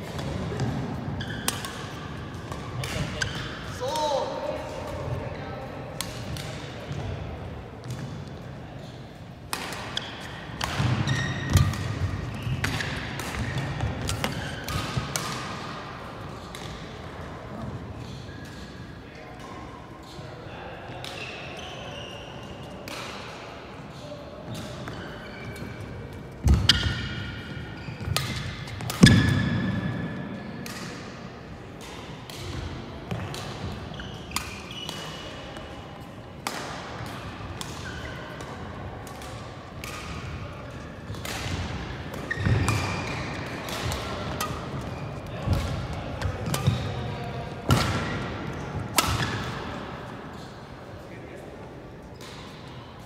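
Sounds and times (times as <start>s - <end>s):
rackets hitting shuttlecock: 0.0s - 5.2s, 5.9s - 8.4s, 9.4s - 17.8s, 20.9s - 21.6s, 22.8s - 23.4s, 24.5s - 35.8s, 36.4s - 50.5s
feet thudding and squeaking on court: 0.6s - 1.6s, 10.0s - 14.7s, 24.5s - 25.9s, 27.7s - 29.4s, 33.8s - 35.2s, 42.3s - 43.4s.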